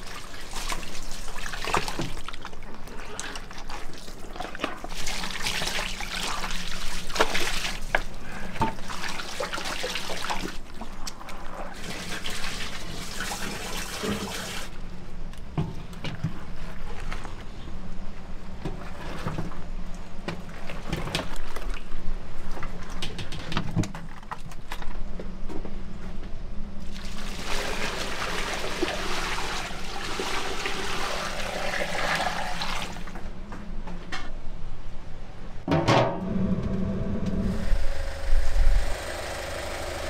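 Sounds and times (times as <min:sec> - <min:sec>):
water running and splashing: 0:00.0 - 0:08.1, 0:08.8 - 0:11.0
steady low hum: 0:33.0 - 0:40.0.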